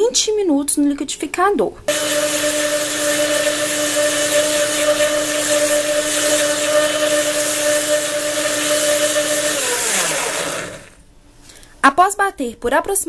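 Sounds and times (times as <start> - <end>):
blender motor whining: 1.9 - 11.0.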